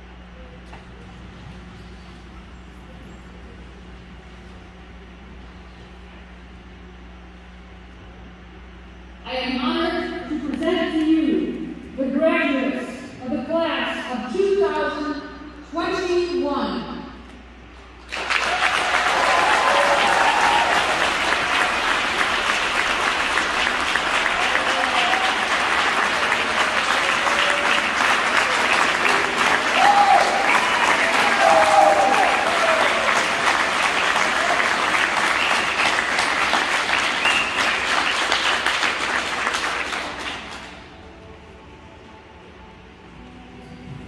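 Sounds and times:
audience applauding: 18.0 - 41.0
people cheering: 18.1 - 40.9.

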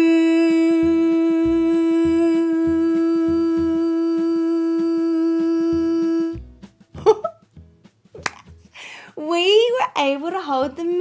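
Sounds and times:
woman singing a long note: 0.0 - 6.4
soft low beat: 0.6 - 8.8.

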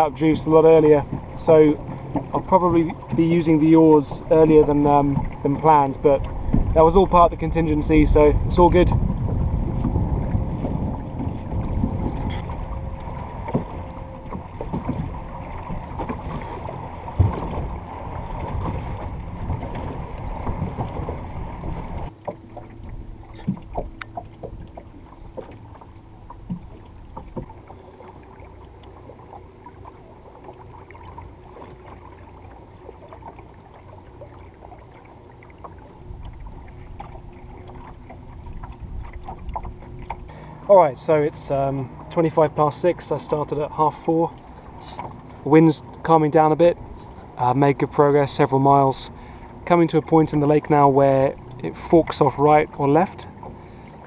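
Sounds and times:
faint motor hum: 0.0 - 54.0
water splashing against hull: 0.0 - 54.0
wind on microphone: 5.9 - 22.1.

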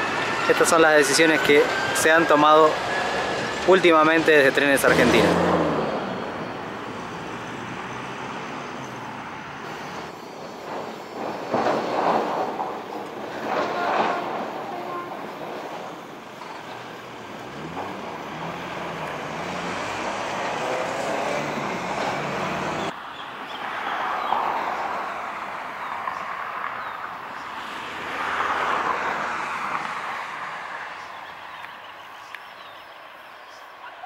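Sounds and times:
train rolling on track: 0.0 - 22.9
diesel locomotive engine drone: 0.0 - 23.0.

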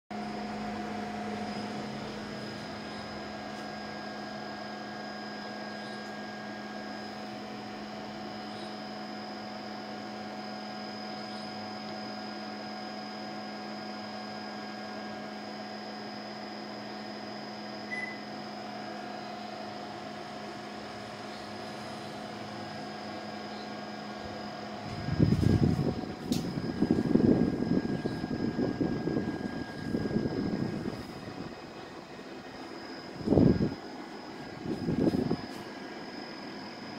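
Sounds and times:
electrical hum with high whine: 0.1 - 36.9
air conditioner short beep: 2.4 - 7.1, 17.8 - 19.6, 23.5 - 31.4, 34.4 - 35.8.

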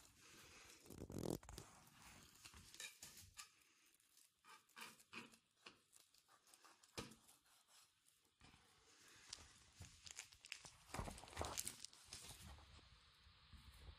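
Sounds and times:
handling sound: 9.2 - 12.4.

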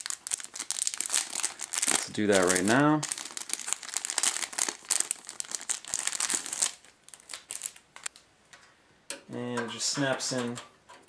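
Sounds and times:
plastic wrapping crinkling: 0.0 - 8.2.

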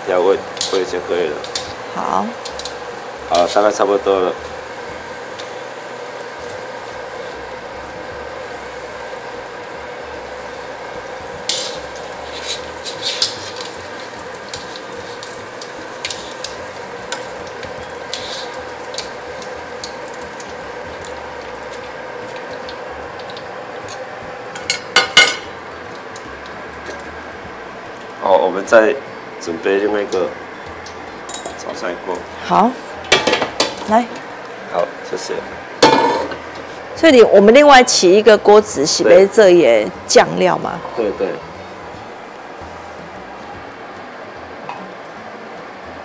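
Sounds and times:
mushrooms sizzling in hot oil: 0.0 - 46.0
utensils clinking against wok: 0.5 - 1.8, 11.4 - 26.2, 30.8 - 31.9, 33.0 - 34.0, 35.8 - 36.7.

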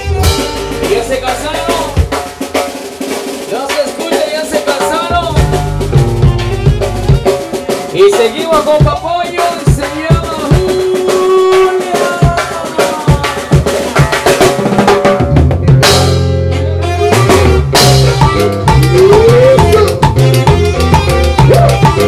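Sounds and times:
saxophone: 0.0 - 1.0, 5.9 - 7.9, 16.5 - 22.0
bass line: 0.0 - 3.0, 4.9 - 13.8, 15.0 - 22.0
guitar: 0.0 - 22.0
timbales played with sticks: 17.2 - 22.0.

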